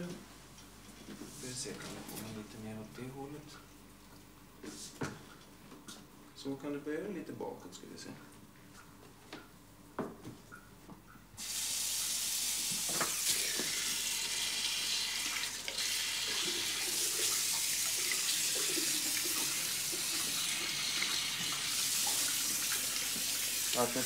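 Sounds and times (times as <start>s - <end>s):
shower water spraying on hair: 11.4s - 24.0s.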